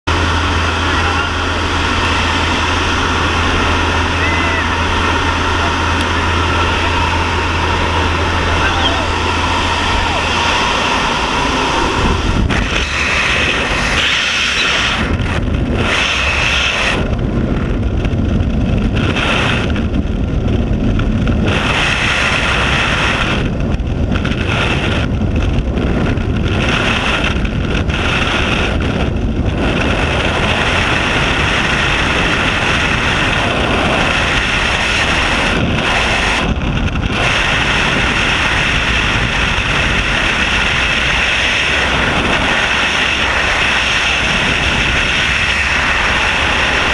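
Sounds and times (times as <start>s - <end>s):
aircraft noise: 0.0s - 46.9s
wind rushing over microphone: 0.0s - 46.9s.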